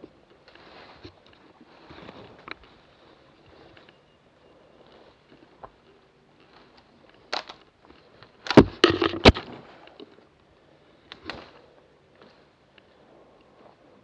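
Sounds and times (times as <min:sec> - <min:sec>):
twigs crackling and snapping: 0:06.4 - 0:10.1, 0:11.0 - 0:11.6.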